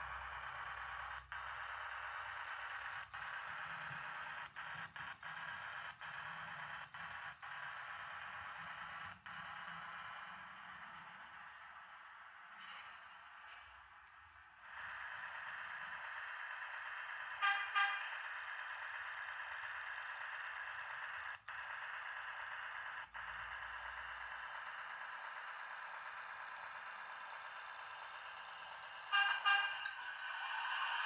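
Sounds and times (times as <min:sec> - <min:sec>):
thin diesel engine sound from speaker: 0:14.6 - 0:20.2, 0:25.1 - 0:31.0
short horn toots: 0:17.4 - 0:18.1, 0:29.0 - 0:30.2.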